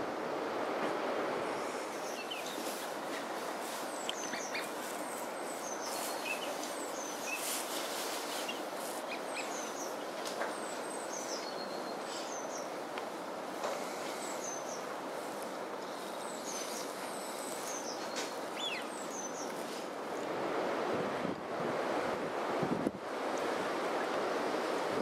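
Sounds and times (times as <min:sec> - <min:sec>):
rushing water: 0:00.0 - 0:25.0
wind: 0:00.0 - 0:25.0
birds chirping and whistling: 0:04.0 - 0:04.8, 0:05.5 - 0:07.6, 0:08.3 - 0:12.7, 0:16.2 - 0:19.5.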